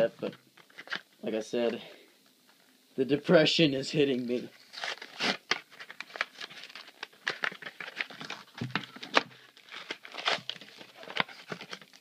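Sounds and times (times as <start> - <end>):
cards and plastic wrapping handled: 0.2 - 1.8, 4.3 - 12.0.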